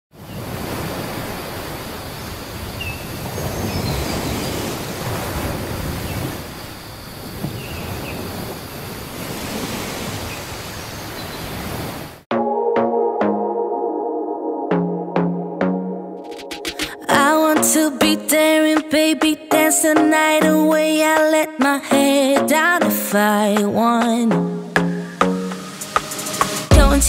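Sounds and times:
wind: 0.1 - 12.3
ocean surf: 0.2 - 12.2, 16.2 - 26.8
synthesizer music: 12.3 - 27.0.

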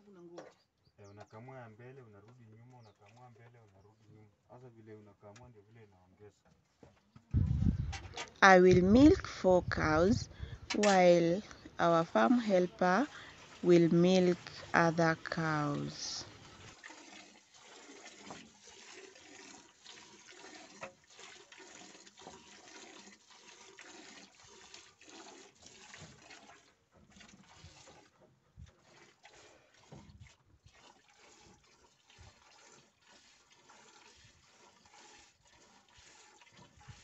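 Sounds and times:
milk squirting into metal bucket: 12.4 - 37.0.

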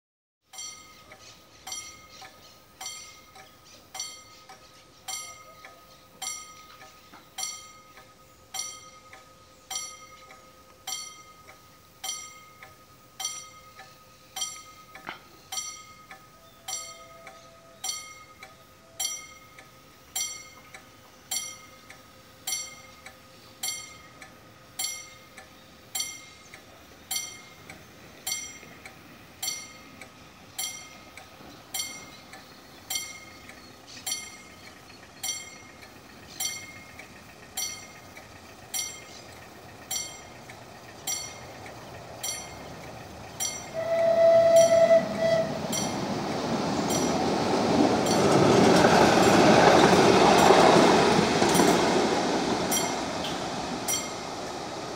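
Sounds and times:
level crossing warning bell: 0.5 - 54.8
tram running noise: 0.5 - 54.9
tram horn: 16.3 - 19.4, 43.4 - 47.4.

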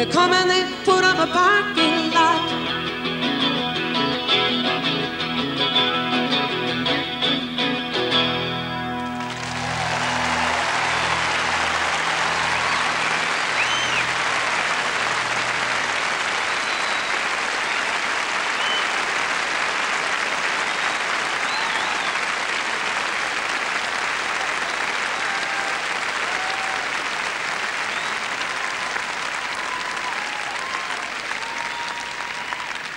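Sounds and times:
crowd cheering: 8.8 - 32.9
audience applauding: 8.9 - 32.9
people shouting: 9.4 - 14.8
whistles: 12.1 - 14.2, 16.3 - 19.0, 20.6 - 22.3, 27.8 - 28.4, 29.5 - 32.7.

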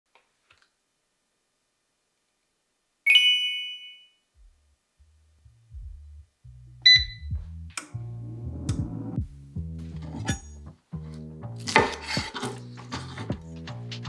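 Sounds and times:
bright chime: 3.1 - 4.2
background music with bass line: 4.4 - 14.0
touch panel beep: 6.8 - 7.4.

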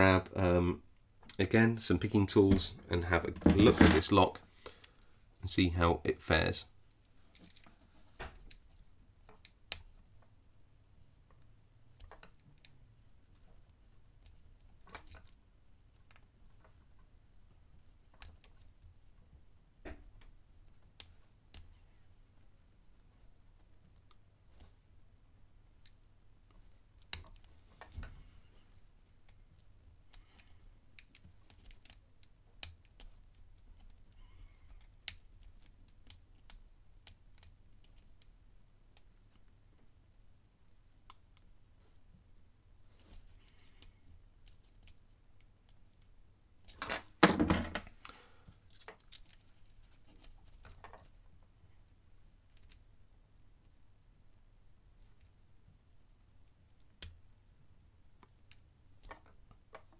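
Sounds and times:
faint ticks of lock pins: 29.2 - 38.3
lock picks scraping and clicking: 47.8 - 51.2.

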